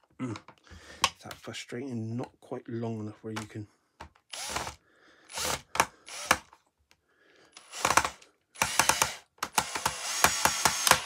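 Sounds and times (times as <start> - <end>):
cordless screwdriver whirring: 4.3 - 6.5, 7.6 - 11.0.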